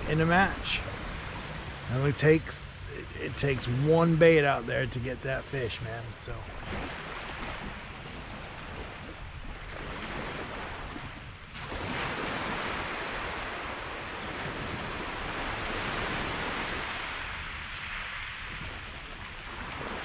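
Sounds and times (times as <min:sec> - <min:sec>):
surf washing on shingle: 0:00.0 - 0:08.6.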